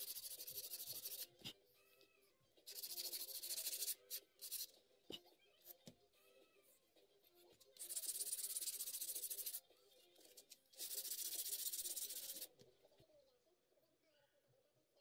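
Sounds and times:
sanding wood on sandpaper: 0.0 - 1.3, 2.7 - 4.7, 7.8 - 9.6, 10.8 - 12.5.

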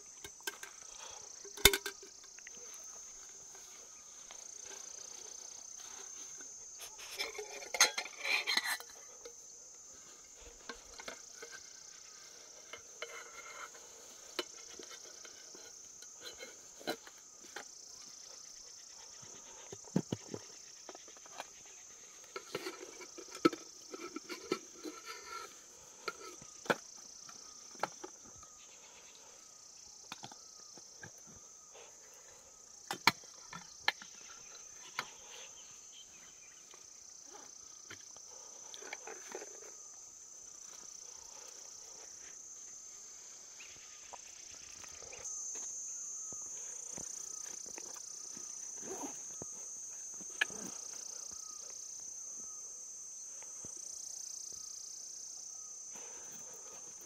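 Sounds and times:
insects chirring: 0.0 - 57.0
metal pots clinking: 0.2 - 2.3, 7.1 - 9.4.

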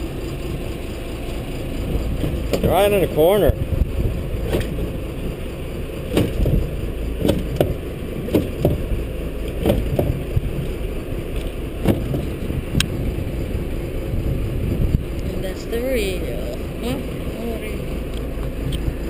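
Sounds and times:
steady low rumble: 0.0 - 19.0
hard knocks and thumps: 2.0 - 2.8, 6.1 - 10.6, 11.8 - 12.9.

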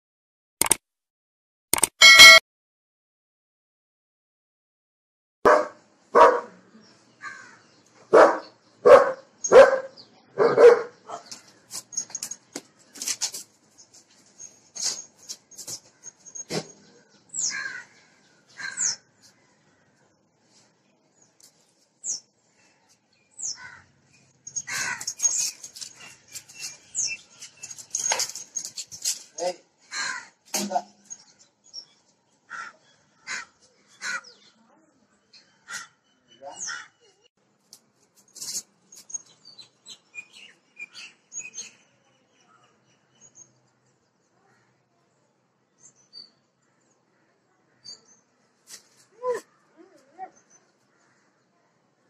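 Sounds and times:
birds chirping: 5.5 - 37.3, 38.2 - 44.8
harsh bird calls: 14.4 - 20.0, 22.1 - 34.6, 35.3 - 37.2.

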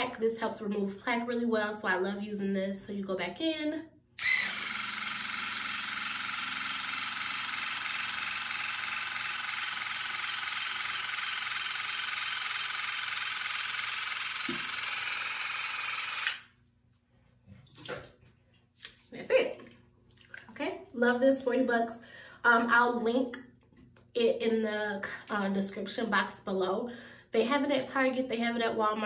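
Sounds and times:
water flosser motor buzzing: 4.2 - 16.5.

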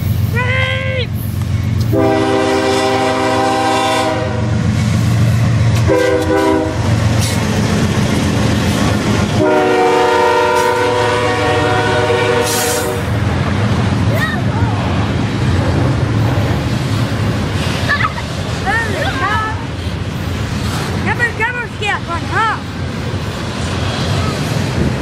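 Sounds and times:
rumble of passing train: 0.0 - 25.0
locomotive air horn blasts: 1.8 - 4.6, 5.8 - 6.9, 9.4 - 13.1.

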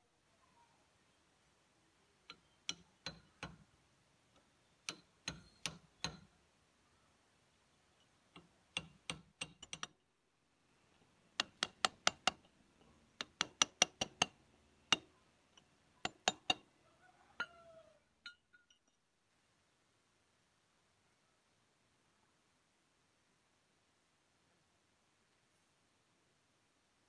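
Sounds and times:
hammer striking metal hub: 2.3 - 3.6, 4.8 - 6.3, 13.2 - 15.1, 16.1 - 16.6.

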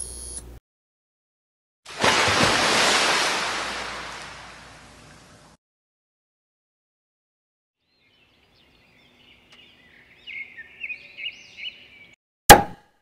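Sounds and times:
high bird-like chirping: 7.9 - 12.2.

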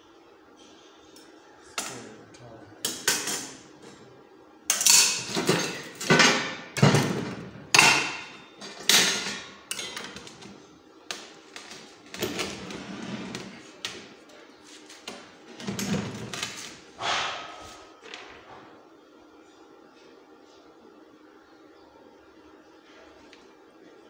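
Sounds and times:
hammer striking steel frame: 17.0 - 17.7.

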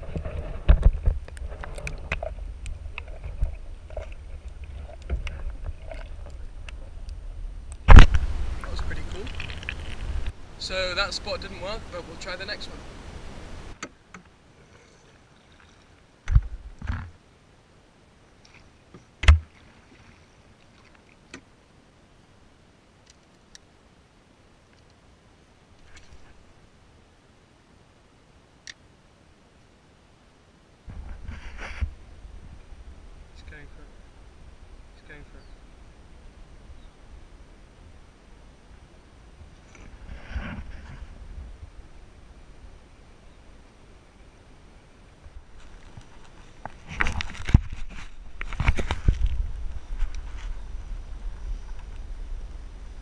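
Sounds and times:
underwater water rumble: 0.0 - 10.4.

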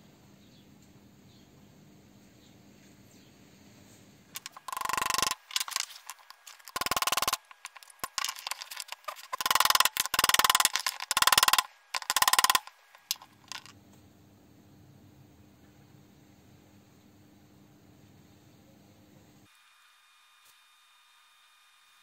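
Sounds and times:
hammer tapping metal pin: 4.4 - 5.8, 6.7 - 13.7.

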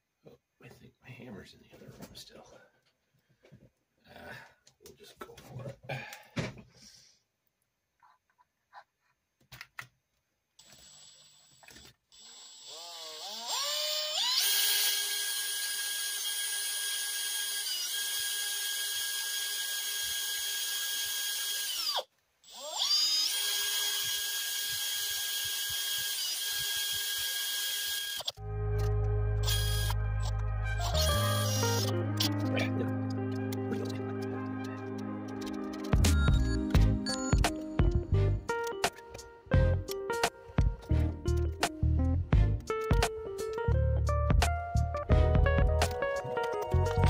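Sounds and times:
power drill whining: 10.6 - 28.4, 29.4 - 31.9.

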